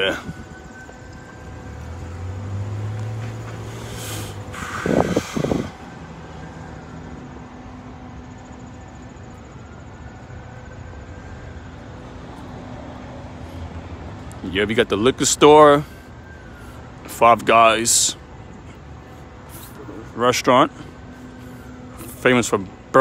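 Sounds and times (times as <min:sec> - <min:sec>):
street traffic hum: 0:00.0 - 0:23.0
car tyres hissing on wet road: 0:03.5 - 0:05.9.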